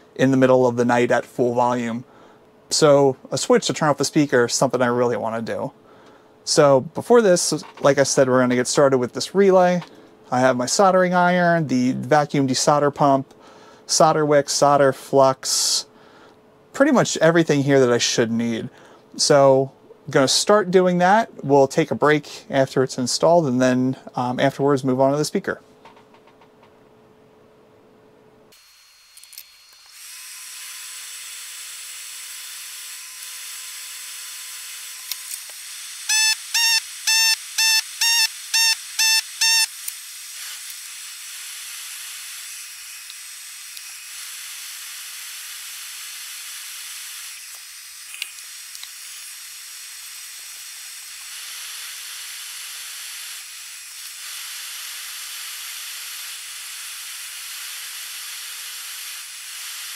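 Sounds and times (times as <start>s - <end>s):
short electronic beeps: 36.1s - 39.7s.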